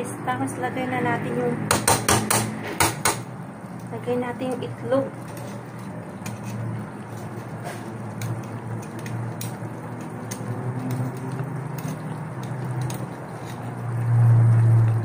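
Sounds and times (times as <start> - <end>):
sauce bubbling and sizzling: 3.0 - 15.0
low hum: 13.7 - 15.0.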